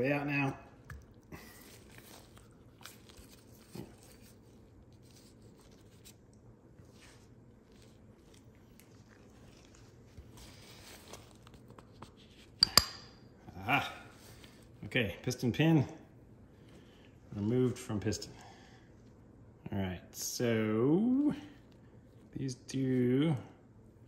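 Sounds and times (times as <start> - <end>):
faint handling sounds: 0.0 - 12.7, 14.0 - 19.5.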